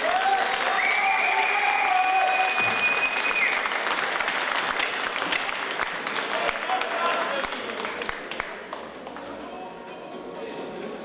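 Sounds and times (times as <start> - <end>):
audience applauding: 0.0 - 9.2
long high whistle-like tone: 0.9 - 3.6.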